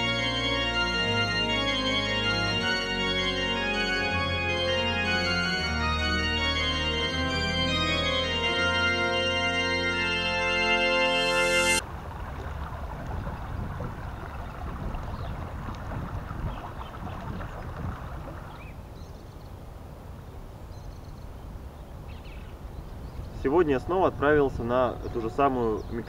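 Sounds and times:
organ-like keyboard chords: 0.0 - 11.8.

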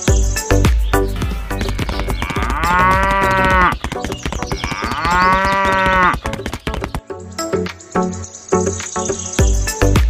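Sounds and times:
cow mooing: 2.0 - 3.7, 4.7 - 6.2.

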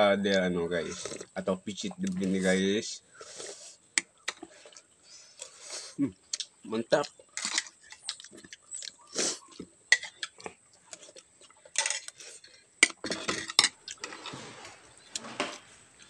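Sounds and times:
sipping hot soup: 0.8 - 1.4
chewing: 0.8 - 15.3.

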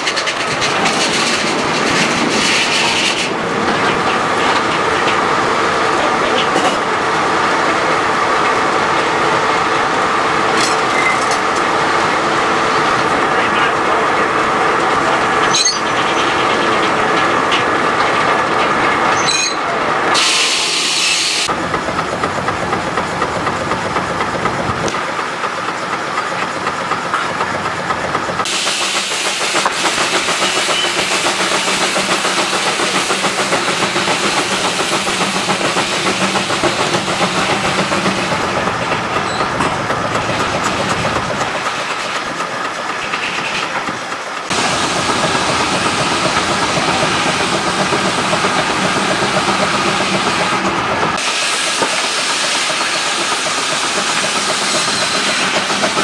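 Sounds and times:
sawmill machinery running: 0.0 - 56.0
steam engine hiss: 20.0 - 21.7, 22.9 - 56.0
steam engine exhaust beat: 20.1 - 56.0.

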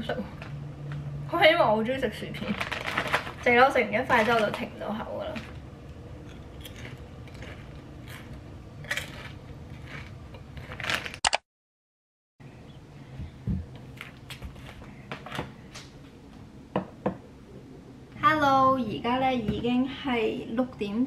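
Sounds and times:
foil chip bag rustling: 2.4 - 5.5, 8.9 - 11.2
plastic food packages rustling: 2.4 - 5.5.

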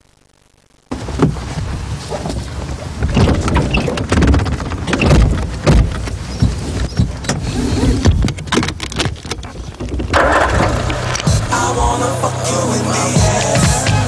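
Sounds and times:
car engine and road noise: 0.9 - 14.0
knocks and rattles: 1.0 - 11.5.

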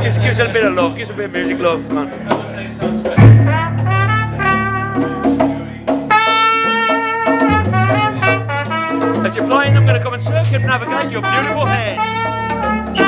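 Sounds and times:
deep bass note: 3.1 - 5.9, 7.5 - 13.0
trumpet playing melodic notes: 3.2 - 13.0.

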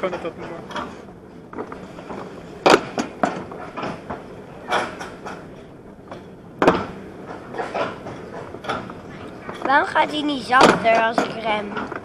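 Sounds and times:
toboggan sled running on steel track: 0.0 - 12.0
sharp clunks and knocks: 2.6 - 5.5, 6.1 - 9.8, 10.5 - 12.0.

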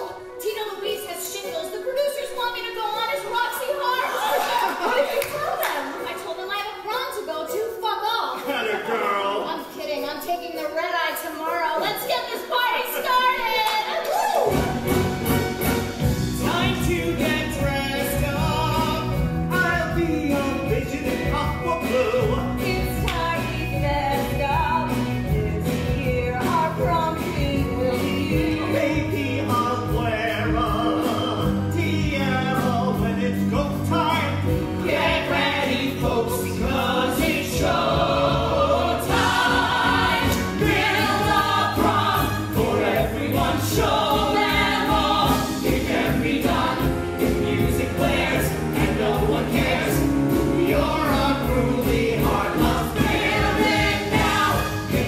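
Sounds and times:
band accompaniment: 14.4 - 55.0
cast singing together: 34.6 - 55.0.

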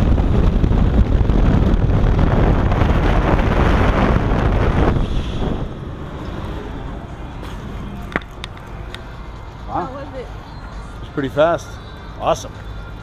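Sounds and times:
wind rushing over microphone: 0.0 - 9.4.

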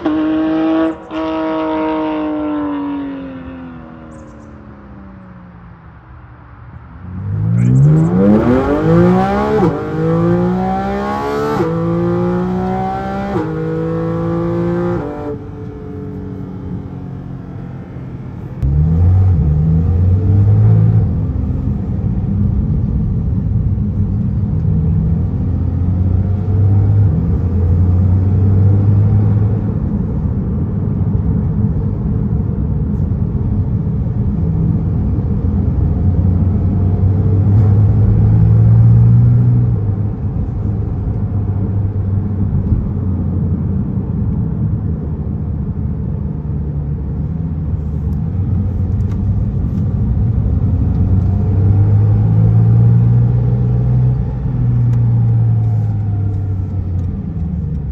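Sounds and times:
sports car accelerating past: 0.0 - 5.4
engine drone inside car cabin: 3.6 - 57.9.

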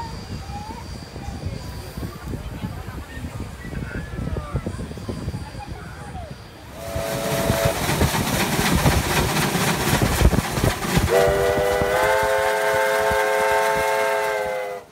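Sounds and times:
wheel and rail noise: 0.0 - 14.9
steam locomotive exhaust beat: 4.6 - 14.9
steam whistle chord: 11.1 - 14.9.

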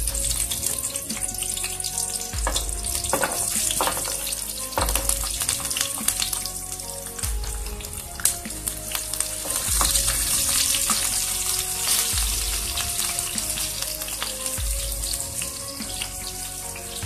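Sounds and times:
oil spitting: 0.0 - 17.0
shallots and garlic sizzling in oil: 0.0 - 17.0.

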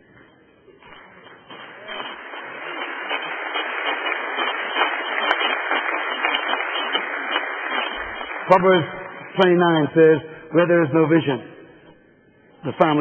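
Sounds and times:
crowd clapping: 0.8 - 10.2.

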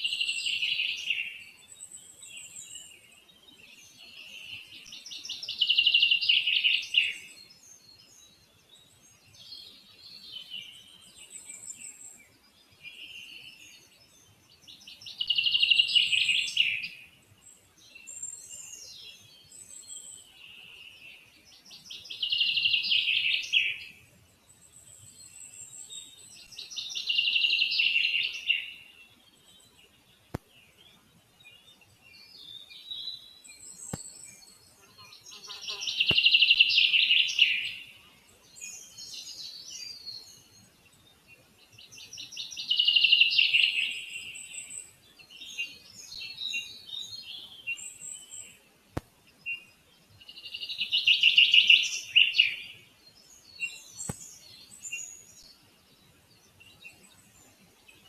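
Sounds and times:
songbird trilling: 35.3 - 37.9, 42.0 - 48.4, 50.4 - 52.8.

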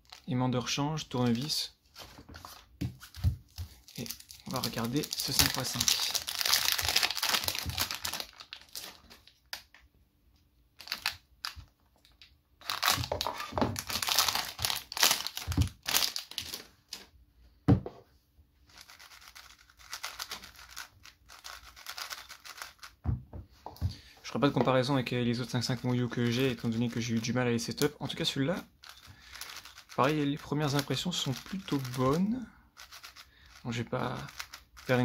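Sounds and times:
plastic wrap crinkling and tearing: 3.7 - 9.7, 10.8 - 17.1
puzzle cube layers clicking: 18.8 - 23.0, 32.8 - 33.6.

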